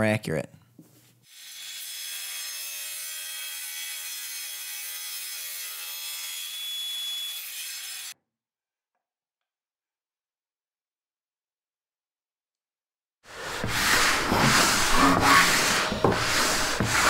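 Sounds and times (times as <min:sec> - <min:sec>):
table saw cutting wood: 0:01.3 - 0:08.2, 0:13.3 - 0:17.0.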